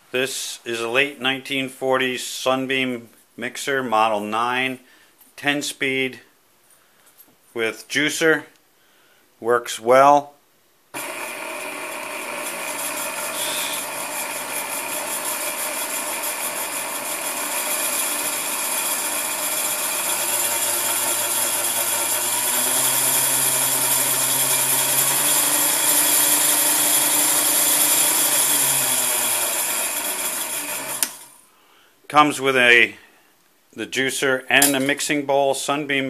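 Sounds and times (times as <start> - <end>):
mixer motor whining: 11.0 - 31.4.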